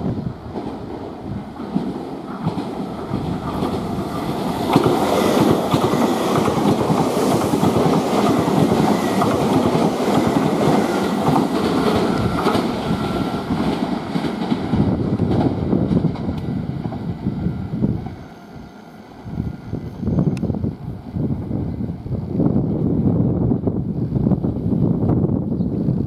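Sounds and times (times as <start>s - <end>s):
electric train passing: 0.0s - 25.4s
wheels clattering over rail joints: 1.5s - 17.1s.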